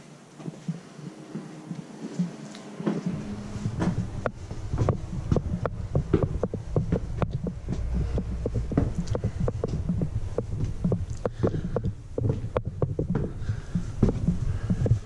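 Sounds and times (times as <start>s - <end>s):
footsteps on stairs and floorboards: 0.0s - 15.0s
low steady rumble: 3.0s - 15.0s.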